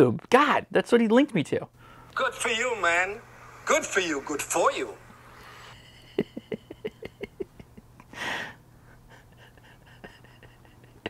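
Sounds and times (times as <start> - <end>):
man chuckling quietly: 9.0 - 11.0.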